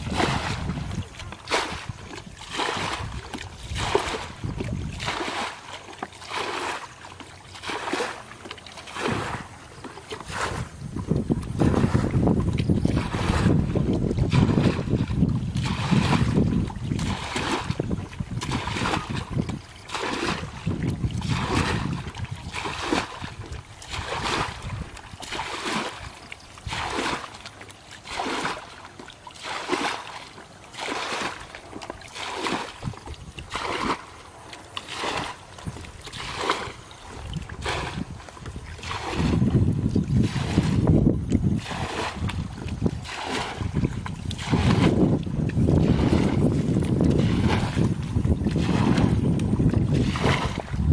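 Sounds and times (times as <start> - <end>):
wind noise on microphone: 0.0 - 5.5, 8.9 - 27.3, 32.2 - 34.1, 34.9 - 50.9
bucket scooping water: 0.0 - 50.9.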